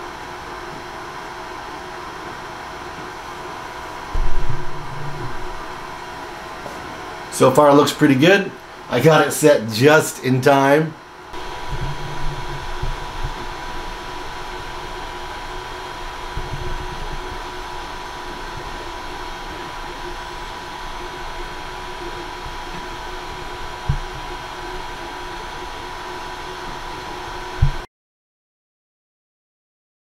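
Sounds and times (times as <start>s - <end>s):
printer fans whirring and whining: 0.0s - 27.9s
low hum: 3.9s - 6.7s, 11.2s - 27.9s
low thump: 4.1s - 5.8s.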